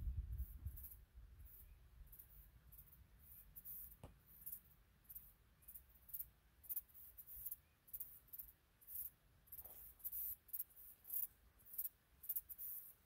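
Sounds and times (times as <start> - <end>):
faint low rumble: 0.0 - 2.2
insects chirping: 0.4 - 13.0.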